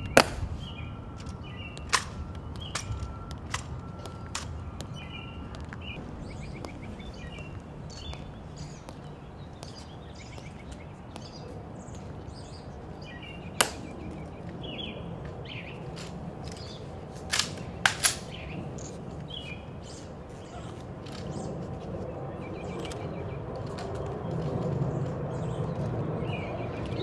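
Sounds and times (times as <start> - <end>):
outdoor background noise: 0.0 - 27.0
small birds chirping: 0.0 - 27.0
sharp rifle clicks and snaps: 1.8 - 4.6, 16.0 - 18.4.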